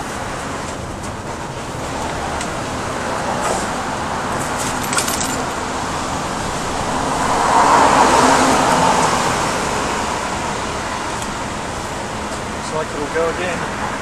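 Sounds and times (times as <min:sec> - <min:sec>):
city road traffic: 0:00.0 - 0:14.0
vehicle passing: 0:01.4 - 0:14.0
metallic clicks and jingling: 0:04.6 - 0:05.6.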